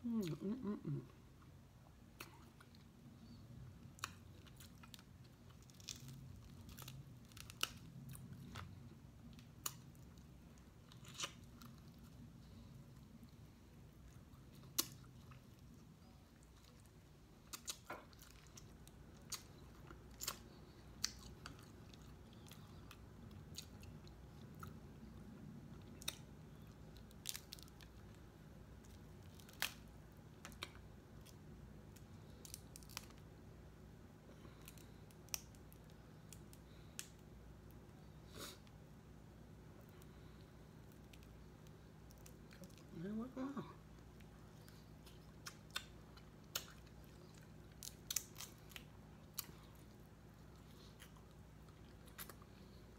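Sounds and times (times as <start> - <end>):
faint low hum: 0.0 - 52.9
chewing: 3.9 - 28.2, 44.0 - 52.8
crab legs cracking: 45.4 - 49.6.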